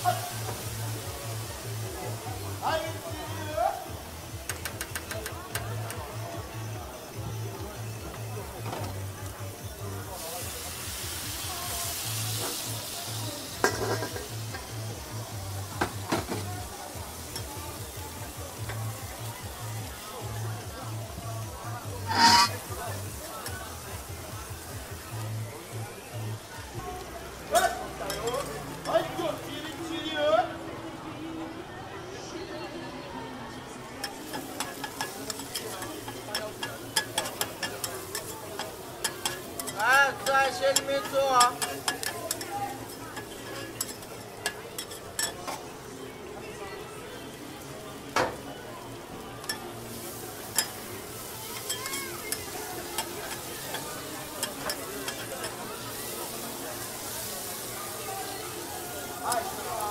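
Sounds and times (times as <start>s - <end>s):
food sizzling on griddle: 0.0s - 30.6s, 33.8s - 59.9s
metal spatulas scraping a griddle: 13.4s - 14.6s, 22.0s - 23.0s, 34.0s - 45.7s, 49.4s - 57.7s.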